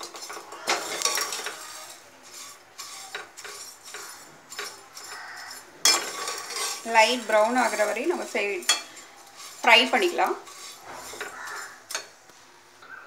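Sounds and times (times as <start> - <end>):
metal spatula scraping a pan: 0.0 - 12.2.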